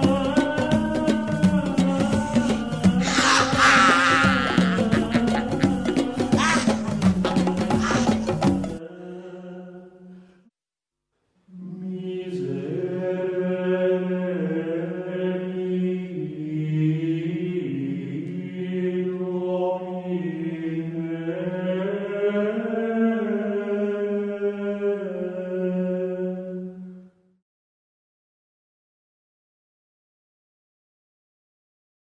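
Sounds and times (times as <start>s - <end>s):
low droning chant: 1.8s - 9.9s
gliding chant voice: 1.8s - 10.1s, 11.5s - 26.8s.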